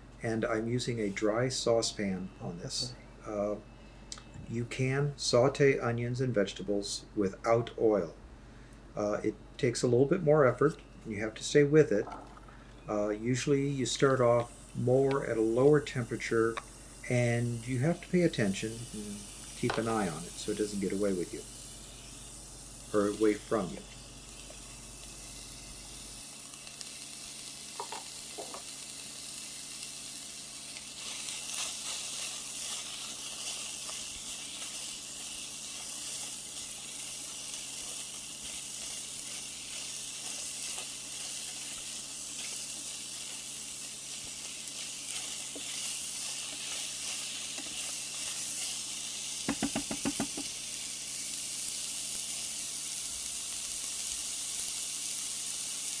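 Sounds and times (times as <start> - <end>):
vegetables sizzling in saucepan: 9.0 - 56.0
rattle of quick knocks: 49.5 - 50.5.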